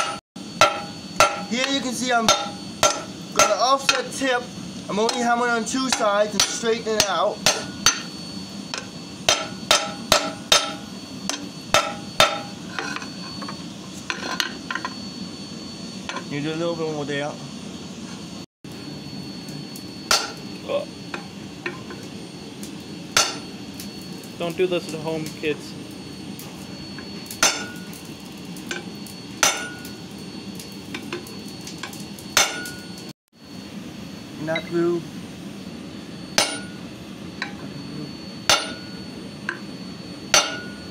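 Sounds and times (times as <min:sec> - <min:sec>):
hammer blows on metal: 0:00.0 - 0:04.2, 0:05.8 - 0:12.9, 0:38.5 - 0:39.0, 0:40.3 - 0:40.9
hammer striking hot steel on anvil: 0:00.0 - 0:15.0, 0:20.0 - 0:20.5, 0:21.1 - 0:22.1, 0:23.1 - 0:23.6, 0:27.0 - 0:33.1, 0:36.3 - 0:36.8, 0:37.4 - 0:37.7, 0:38.4 - 0:39.7, 0:40.3 - 0:40.9.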